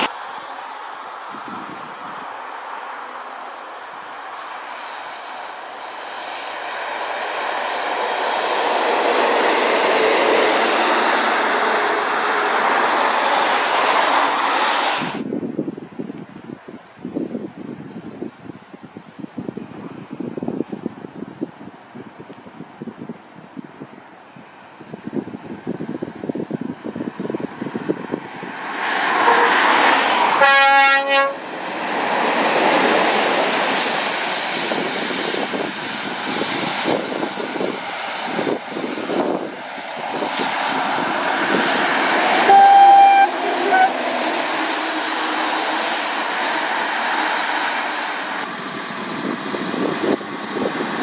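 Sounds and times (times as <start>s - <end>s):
lorries passing: 0.0s - 15.3s, 18.6s - 51.0s
tyres hissing through water: 2.6s - 15.2s, 40.5s - 48.4s
short high horn toot: 29.2s - 29.6s, 30.4s - 31.4s, 42.4s - 44.0s
horn blast: 29.2s - 31.4s, 42.4s - 44.2s.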